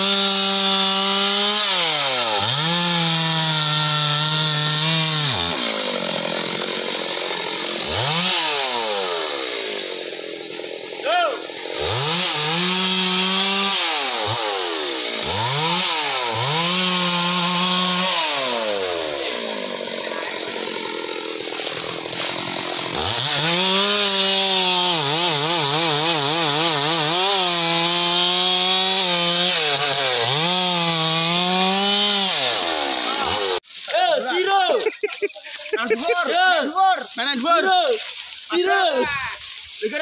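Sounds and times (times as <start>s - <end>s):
chainsaw cutting wood: 0.0s - 40.0s.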